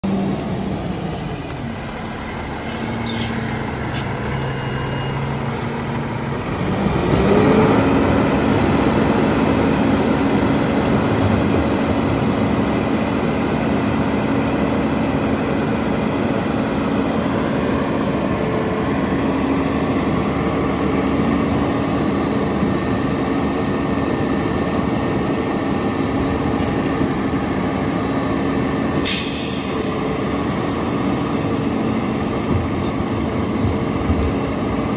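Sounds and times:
diesel truck engine running: 0:00.0 - 0:34.9
air brake hissing: 0:01.2 - 0:05.6, 0:29.0 - 0:29.9.

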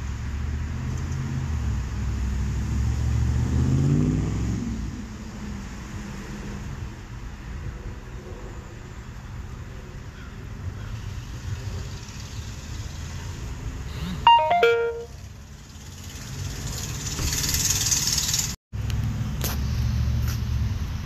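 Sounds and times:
road traffic rumble: 0:00.0 - 0:21.0
descending electronic chime: 0:14.3 - 0:15.2.

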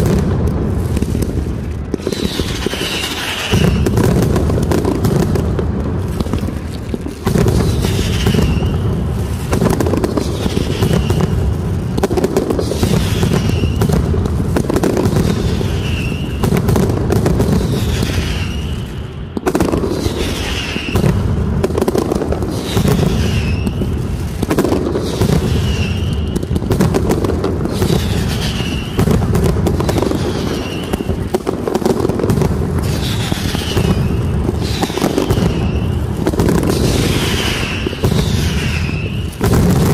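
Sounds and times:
firecrackers crackling and banging: 0:00.0 - 0:39.9
whistling rockets: 0:00.0 - 0:39.9.

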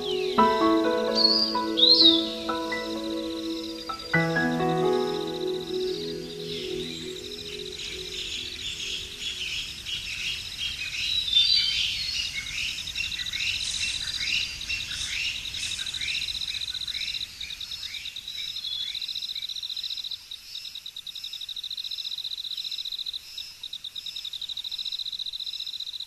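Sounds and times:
bird downward-slurred calls: 0:00.0 - 0:09.7
faint music: 0:00.0 - 0:09.7.

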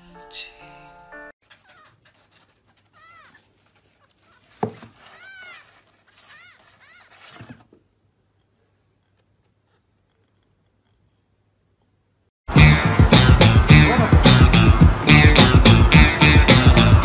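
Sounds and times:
scratching on cardboard: 0:01.4 - 0:07.8.

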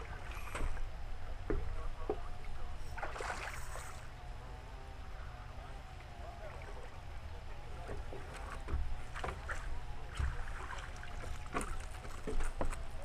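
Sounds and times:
fish splashing in water: 0:03.0 - 0:04.1, 0:07.9 - 0:12.7
knocks on wooden pier: 0:07.8 - 0:10.5, 0:11.4 - 0:12.9.

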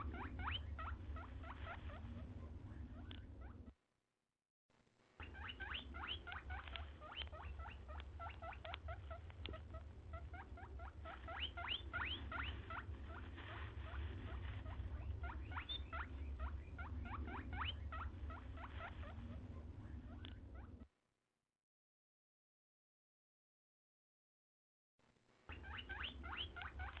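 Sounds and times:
hedgehogs squeaking: 0:00.0 - 0:03.7, 0:05.2 - 0:20.9, 0:25.5 - 0:27.0
low steady hum: 0:00.0 - 0:03.8, 0:04.7 - 0:20.9.

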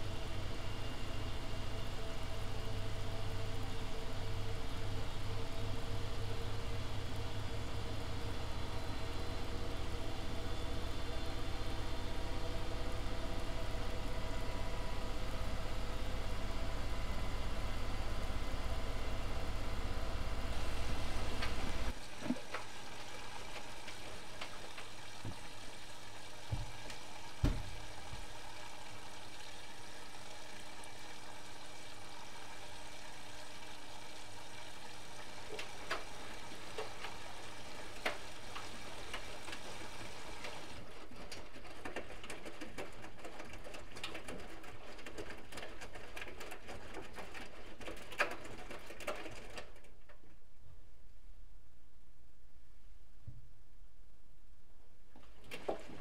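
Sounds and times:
washing machine hum: 0:00.0 - 0:50.8, 0:55.1 - 0:56.0
washing machine drum turning laundry: 0:20.4 - 0:50.3, 0:55.2 - 0:56.0.

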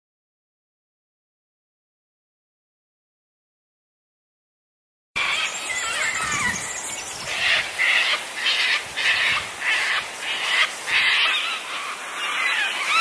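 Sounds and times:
bird harsh rasping calls: 0:05.2 - 0:13.0
faint birdsong warbling: 0:05.2 - 0:13.0.

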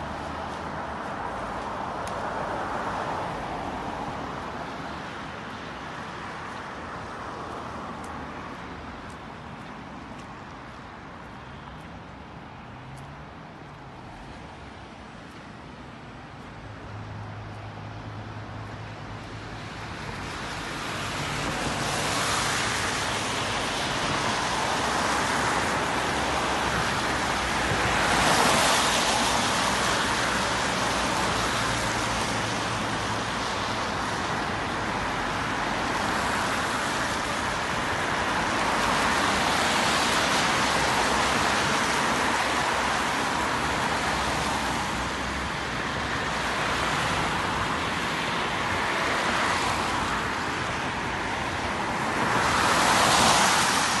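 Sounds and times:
traffic on a wet road: 0:00.0 - 0:54.0
cars swishing past: 0:17.0 - 0:54.0.

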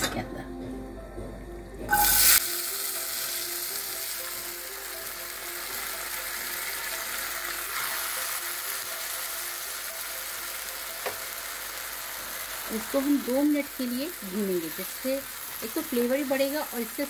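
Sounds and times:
pearls sizzling in hot oil: 0:01.9 - 0:17.0.

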